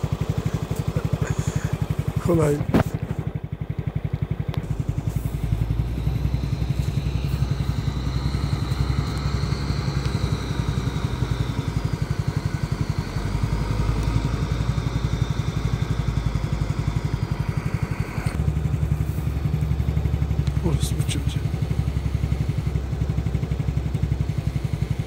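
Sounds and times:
engine chugging: 0.0s - 25.0s
faint high whine: 4.6s - 18.4s.

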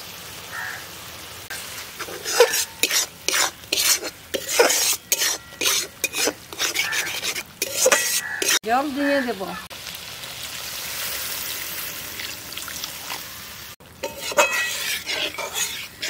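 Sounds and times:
oil sizzling: 0.0s - 16.0s
metal spatula scraping pan: 1.9s - 8.6s, 14.0s - 16.0s.

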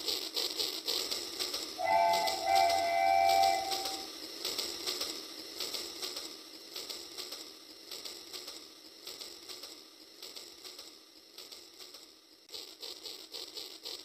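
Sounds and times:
toy train wheels clicking: 0.0s - 14.0s
held electronic tone: 1.8s - 4.1s.

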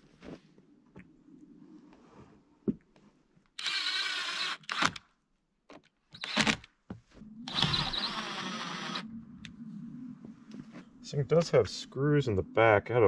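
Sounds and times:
cordless drill into wood: 3.6s - 5.0s, 6.1s - 6.6s, 7.5s - 9.0s.

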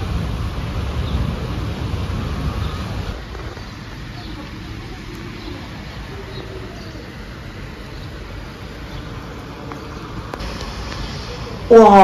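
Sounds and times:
rolling thunder rumble: 0.0s - 4.9s.

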